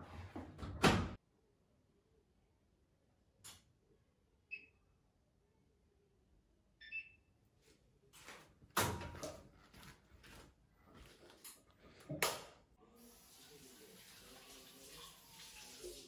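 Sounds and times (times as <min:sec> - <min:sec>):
washing machine button beep: 0:04.5 - 0:04.8, 0:06.8 - 0:07.2.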